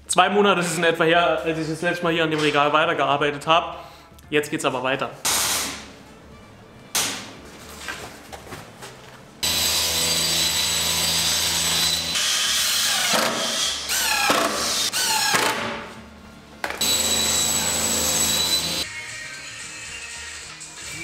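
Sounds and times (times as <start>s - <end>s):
table saw running: 9.4s - 15.4s, 16.7s - 18.8s
cordless drill whirring: 16.8s - 18.8s.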